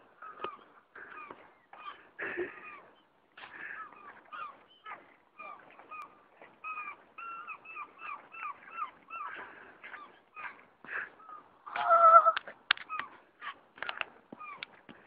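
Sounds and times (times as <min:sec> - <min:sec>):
high-pitched squealing laughter: 0:11.7 - 0:13.1.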